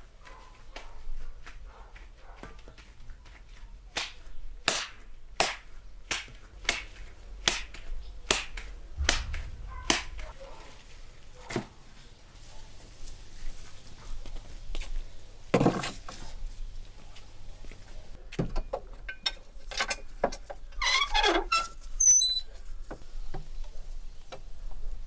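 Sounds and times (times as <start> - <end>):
wet smacks of slapped mince: 3.9 - 10.1.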